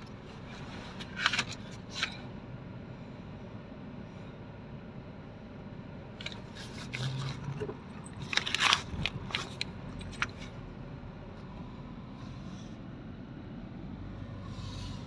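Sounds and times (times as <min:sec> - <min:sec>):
car cabin rumble: 0:06.0 - 0:12.4
crackling scraping clicks: 0:06.2 - 0:10.5.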